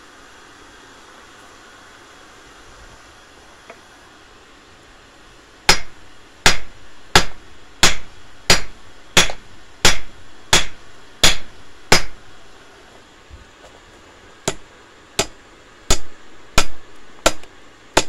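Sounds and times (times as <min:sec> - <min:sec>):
hammer striking hot steel on anvil: 0:05.7 - 0:12.2, 0:14.4 - 0:18.0.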